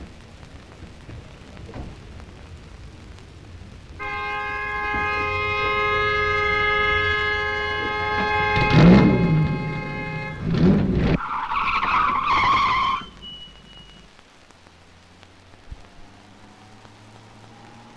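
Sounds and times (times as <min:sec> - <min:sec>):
two-note train horn blast: 0:04.0 - 0:10.9.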